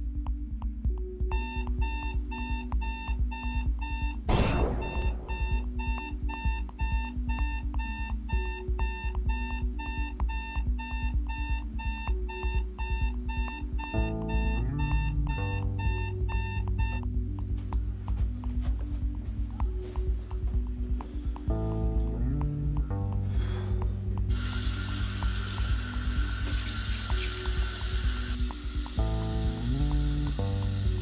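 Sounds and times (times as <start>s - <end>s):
music with bass and drum beat: 0.0s - 31.0s
alarm clock beeping: 1.3s - 17.1s.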